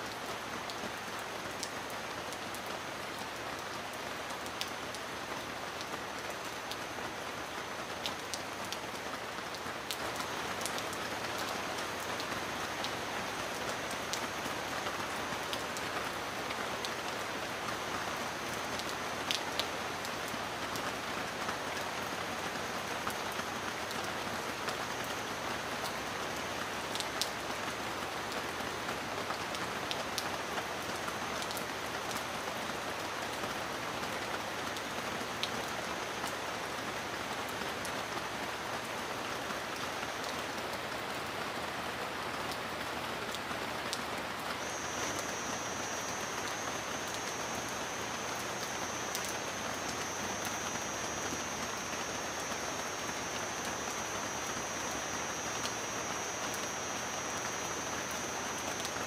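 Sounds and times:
steady rain falling: 0.0s - 59.0s
rain drop ticks: 18.8s - 19.7s
faint thin high tone: 44.6s - 59.0s.

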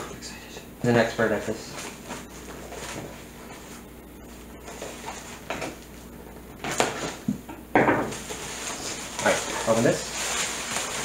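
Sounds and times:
packing rustling and scraping: 8.1s - 11.0s.

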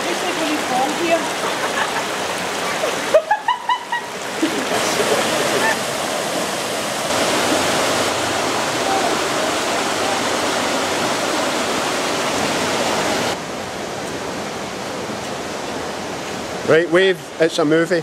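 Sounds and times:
waterfall and stream rushing: 0.0s - 18.0s.

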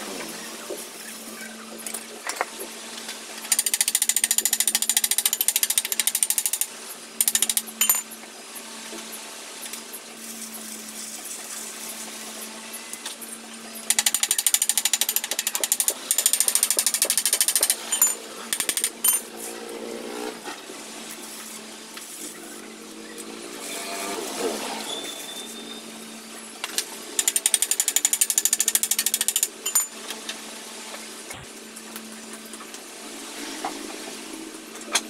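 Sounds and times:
arc welder humming: 9.6s - 33.4s.

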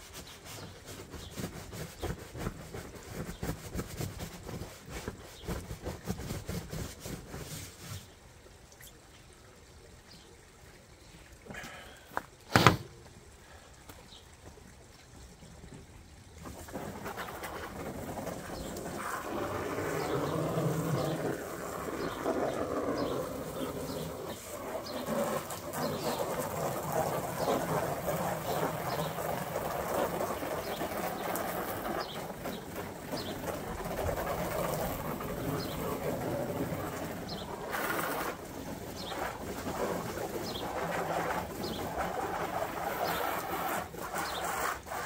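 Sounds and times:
water rushing in a hot tub: 0.0s - 45.0s
small birds chirping: 19.8s - 34.2s, 34.8s - 36.1s, 36.8s - 39.4s, 40.1s - 40.9s, 41.5s - 42.1s, 44.1s - 44.6s.

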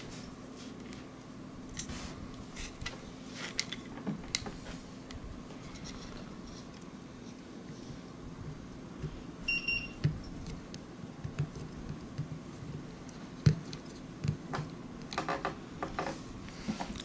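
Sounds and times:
short high beep: 9.5s - 10.0s.

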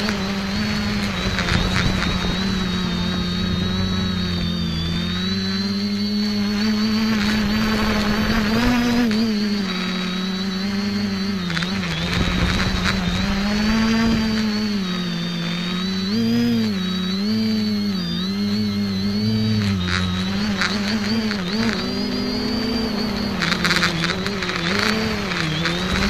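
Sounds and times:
drone propellers whirring: 0.0s - 26.0s
high motor whine: 0.0s - 26.0s.

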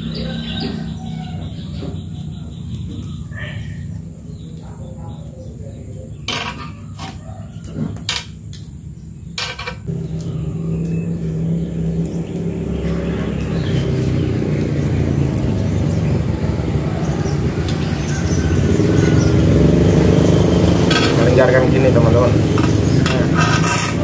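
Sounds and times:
low engine hum: 9.8s - 24.0s.

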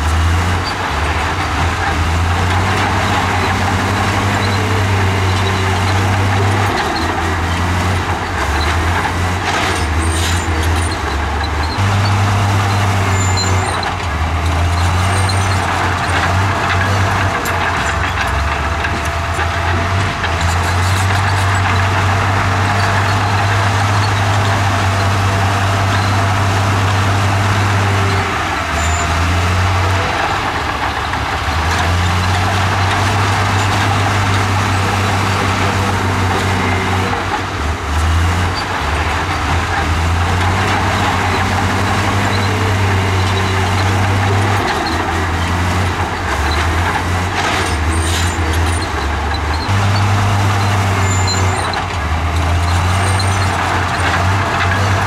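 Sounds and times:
bulldozer diesel engine: 0.0s - 55.0s.

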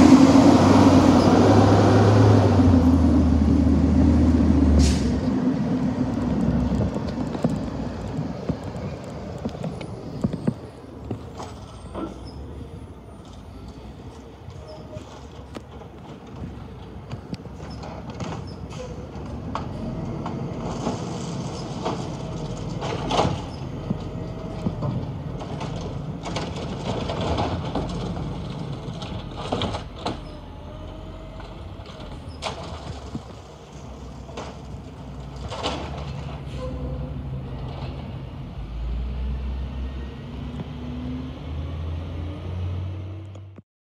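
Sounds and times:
garbage truck diesel engine: 0.0s - 43.3s
clanks and bangs of bins: 24.6s - 30.3s, 35.4s - 36.4s.

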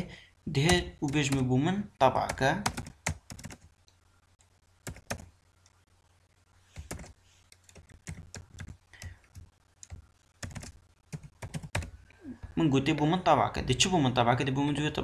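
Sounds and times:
computer keyboard typing: 2.2s - 3.7s, 4.4s - 5.3s, 6.8s - 12.0s.

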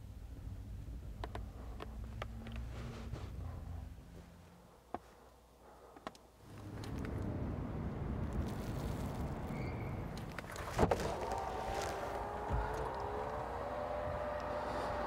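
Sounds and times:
passing traffic hum: 6.4s - 15.0s.

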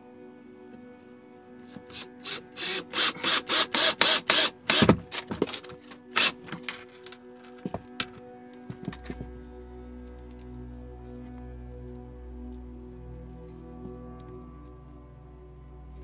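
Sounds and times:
cordless drill bursts into wood: 2.3s - 5.3s.

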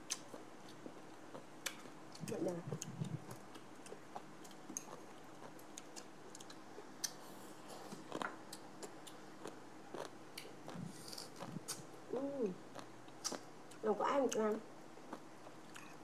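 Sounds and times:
chewing and biting: 0.0s - 7.2s, 7.8s - 11.9s, 15.1s - 16.0s.

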